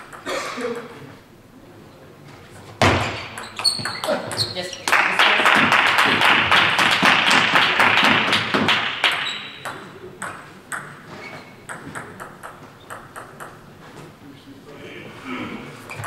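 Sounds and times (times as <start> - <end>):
table tennis ball bouncing: 0.0 - 0.9, 2.8 - 4.9, 5.6 - 13.7.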